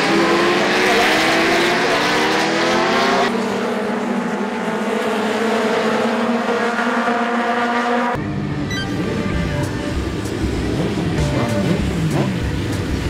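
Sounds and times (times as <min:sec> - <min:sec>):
lower sound: 0:08.2 - 0:12.4
motorcycles revving past: 0:09.0 - 0:13.0.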